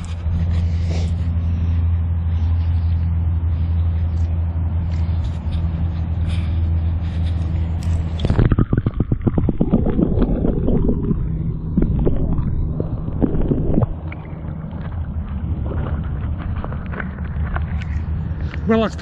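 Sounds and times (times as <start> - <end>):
underwater sloshing and gurgling: 0.0 - 18.6
steady low hum: 0.0 - 19.0
light water splashes: 11.9 - 18.7.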